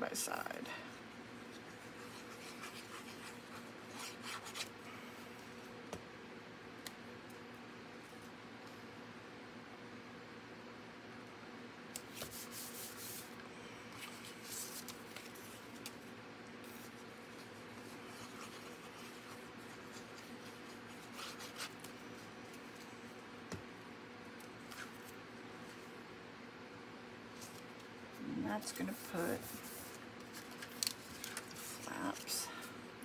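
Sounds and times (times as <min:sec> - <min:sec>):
faint steady hum: 0:00.0 - 0:33.0
card stock scraping and rustling: 0:16.6 - 0:23.0.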